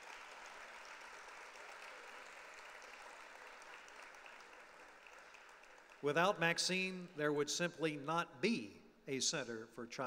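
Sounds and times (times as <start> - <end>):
audience applause: 0.0 - 6.3.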